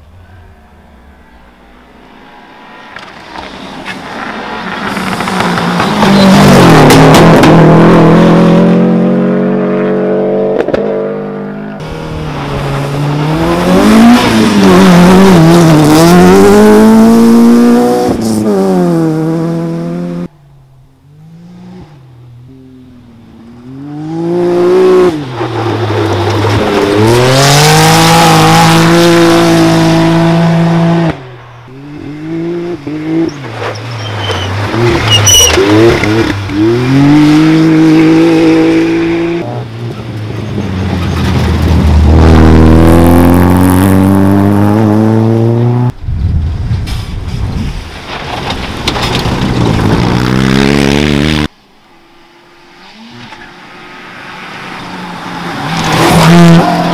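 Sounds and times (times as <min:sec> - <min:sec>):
rally cars revving past: 0:02.2 - 0:20.3, 0:23.6 - 0:46.0, 0:52.7 - 0:56.9.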